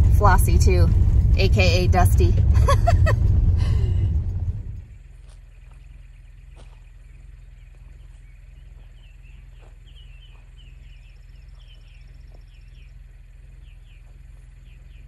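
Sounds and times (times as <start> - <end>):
steady low hum: 0.0 - 15.0
birds chirping: 4.6 - 15.0.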